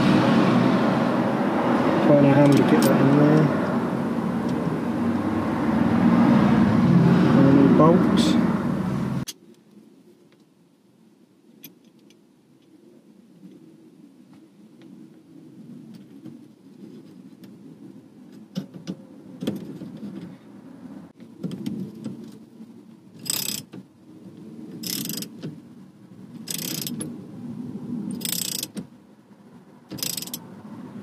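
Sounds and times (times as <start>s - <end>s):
socket ratchet clicking: 26.5s - 27.0s, 29.9s - 30.4s.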